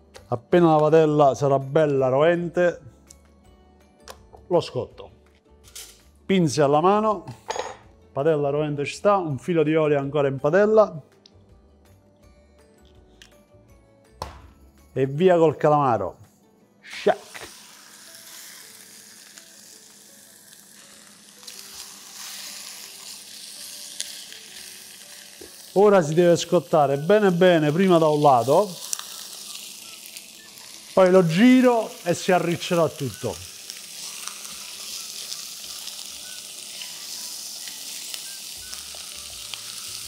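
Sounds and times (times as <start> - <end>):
squid sizzling in a hot pan: 17.0 - 40.0
oil crackling and popping: 17.2 - 40.0.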